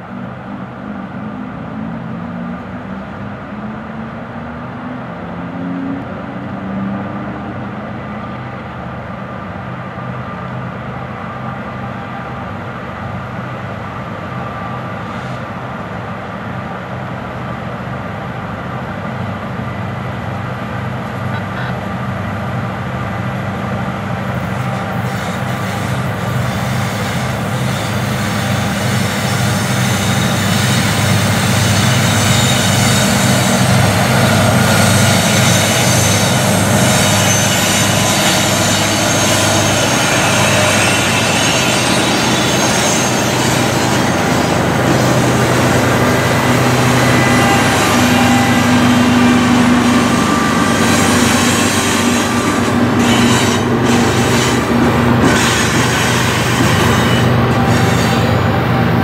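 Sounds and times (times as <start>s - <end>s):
diesel locomotive engines: 0.0s - 59.0s
boxcars rolling past: 24.2s - 59.0s
steel wheels rolling on rails: 24.3s - 59.0s.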